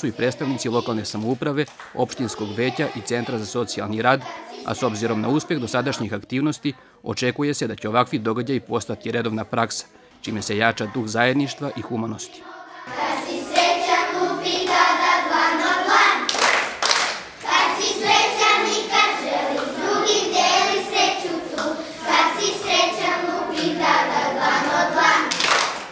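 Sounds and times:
children singing together: 0.0 - 1.4, 2.0 - 6.2, 10.3 - 16.6, 17.4 - 25.8
sharp claps: 1.1 - 2.1, 16.3 - 17.8, 24.6 - 25.9.

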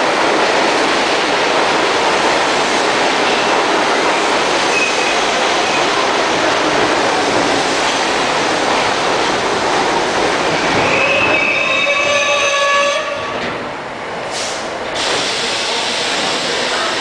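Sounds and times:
subway train rumble: 0.0 - 17.0
train brakes squealing: 4.7 - 5.2, 10.8 - 13.4.

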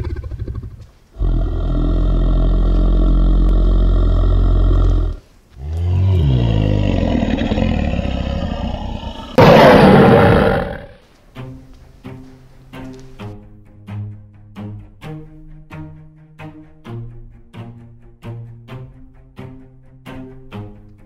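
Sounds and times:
deep dinosaur growl: 0.0 - 11.0
loud harsh roar: 5.6 - 11.0.

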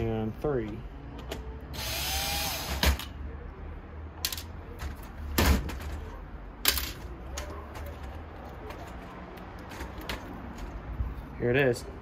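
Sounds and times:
cordless drill motor running: 1.7 - 2.8
plastic keyboard parts handled: 6.7 - 10.8.

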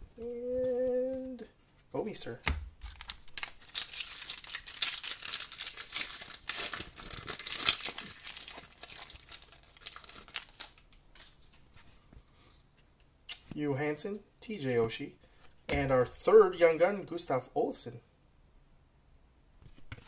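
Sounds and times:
foil wrapper crinkling and tearing: 2.8 - 11.6.

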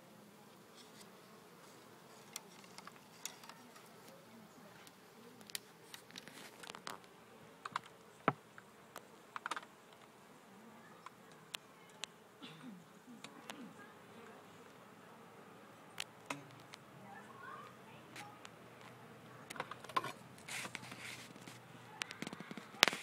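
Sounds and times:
honeybees buzzing: 0.0 - 23.0
handling clicks and knocks: 19.5 - 20.9.

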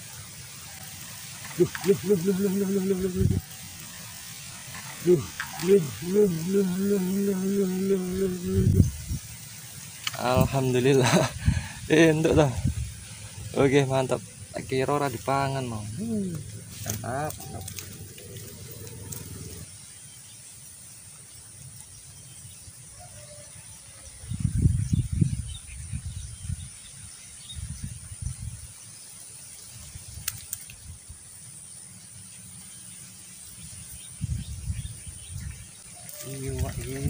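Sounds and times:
faint high hiss: 0.0 - 37.0
low rumbles: 10.0 - 19.7.

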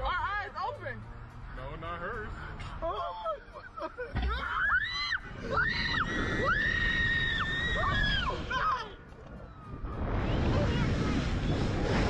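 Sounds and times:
young women screaming: 4.2 - 8.9
rumble of rushing air: 5.2 - 12.0.

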